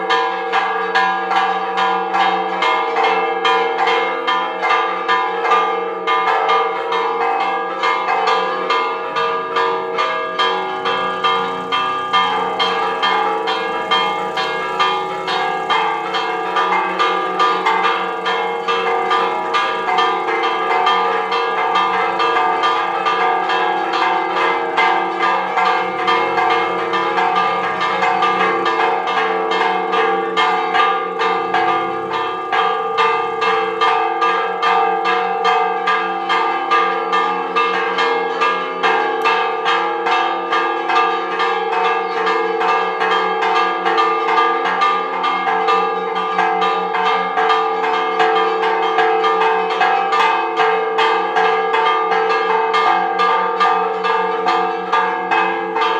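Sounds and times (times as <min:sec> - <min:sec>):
church bells ringing fast: 0:00.0 - 0:55.9.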